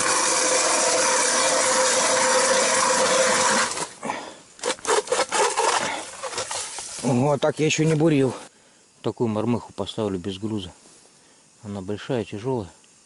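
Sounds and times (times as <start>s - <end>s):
ice auger grinding scrape: 0.0s - 4.0s, 4.6s - 7.1s.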